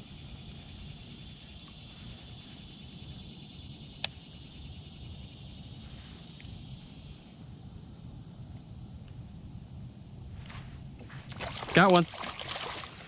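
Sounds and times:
insect chorus: 0.0s - 13.0s
sharp click: 4.0s - 4.2s.

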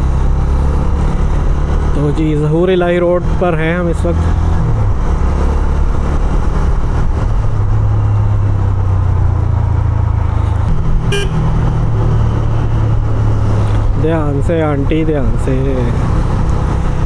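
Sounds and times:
road noise: 0.0s - 17.0s
motorcycle engine running: 8.9s - 15.1s
vehicle horn toot: 11.1s - 11.5s.

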